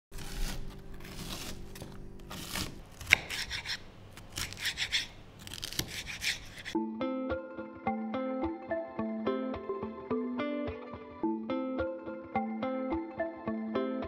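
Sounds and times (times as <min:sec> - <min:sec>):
knife slicing vegetables on board: 0:00.2 - 0:06.8
plucked guitar music: 0:06.8 - 0:14.0.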